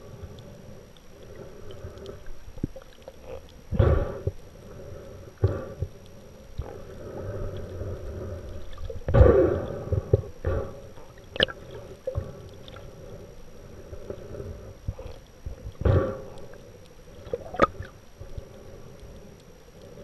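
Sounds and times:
water gurgling underwater: 8.5s - 12.4s, 17.2s - 18.0s.

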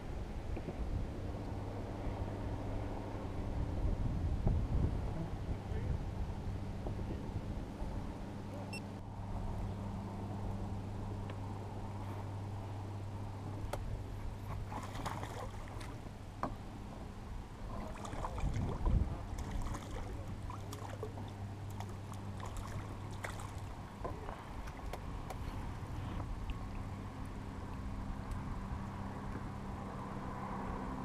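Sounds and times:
steady low hum: 0.0s - 31.0s
fish splashing at surface: 14.7s - 16.0s.

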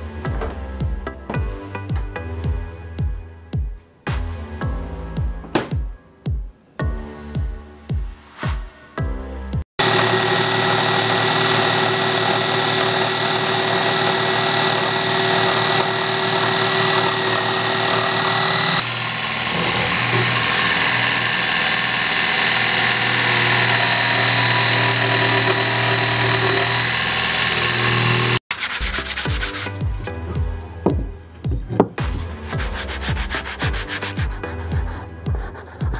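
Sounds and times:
scroll saw cutting plywood: 9.8s - 29.8s, 32.0s - 34.5s
sandpaper rubbing on plywood: 28.5s - 30.1s, 32.0s - 35.9s.

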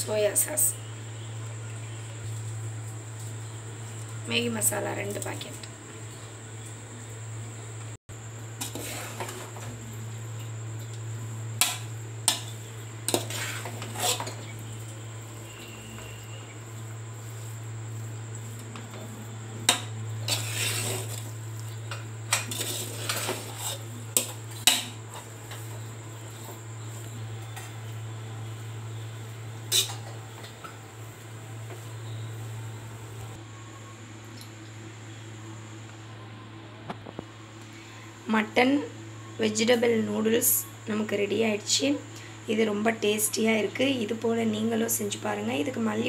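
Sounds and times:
steady low hum: 0.0s - 46.0s
ladle scraping pot: 8.6s - 9.6s, 13.1s - 14.6s, 19.7s - 21.3s, 22.3s - 25.6s, 29.7s - 30.1s.

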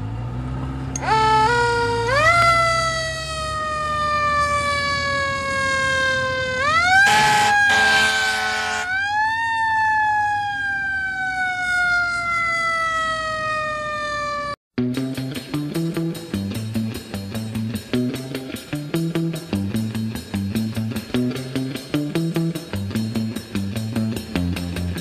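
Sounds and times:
fire engine siren wailing: 1.0s - 14.6s
harsh horn blast: 6.9s - 8.9s
guitar music: 14.8s - 25.0s.

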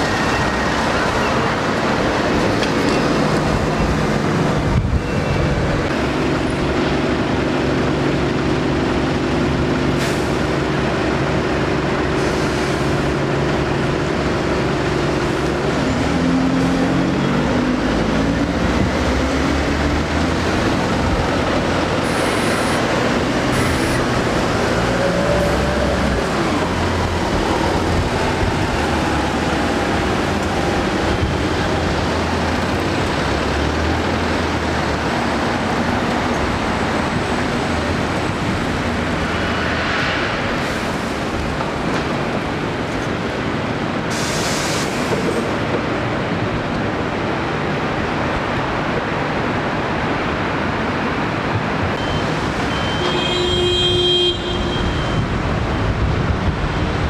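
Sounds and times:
bus engine droning: 0.0s - 57.0s
street traffic: 0.0s - 57.0s
air brake hisses: 44.1s - 45.2s.

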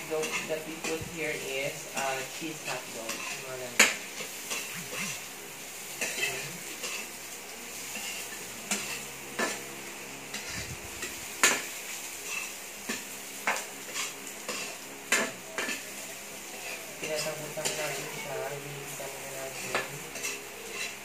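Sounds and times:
light frying sizzle: 0.0s - 21.0s
utensil scraping a wok: 0.0s - 21.0s.

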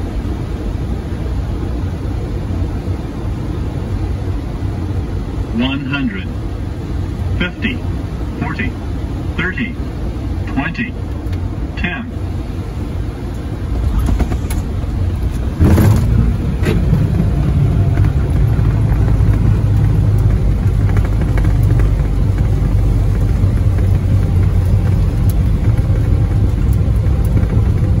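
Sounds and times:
heavy low rumble of landing rollout: 0.0s - 28.0s
airliner touching down: 11.4s - 28.0s.

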